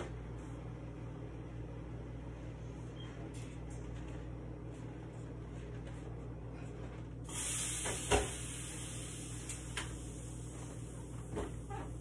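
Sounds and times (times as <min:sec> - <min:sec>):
steady low hum: 0:00.0 - 0:12.0
steady hiss: 0:07.3 - 0:11.3.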